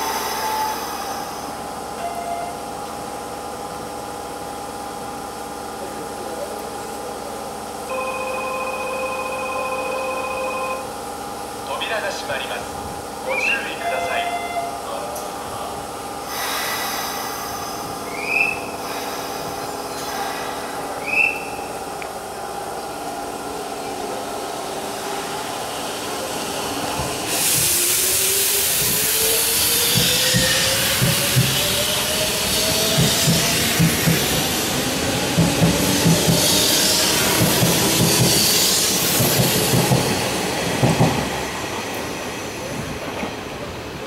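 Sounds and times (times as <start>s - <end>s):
electric train motors whining: 14.9s - 40.5s.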